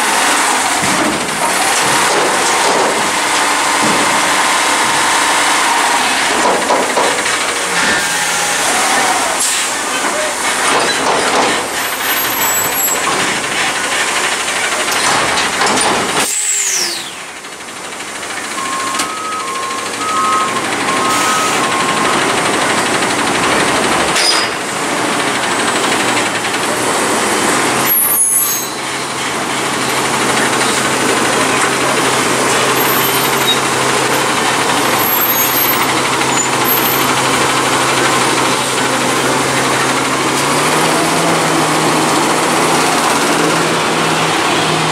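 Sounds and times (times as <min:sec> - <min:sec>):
garbage truck engine: 0:00.0 - 0:44.9
lift hydraulics: 0:00.0 - 0:44.9
air-brake blast: 0:07.3 - 0:10.7, 0:16.1 - 0:17.4, 0:18.7 - 0:22.2
two-tone beeping alarm: 0:18.5 - 0:22.4.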